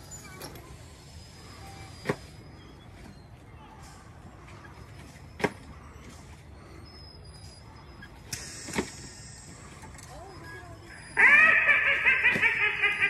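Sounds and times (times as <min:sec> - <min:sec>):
brief hiss: 0:08.3 - 0:09.6.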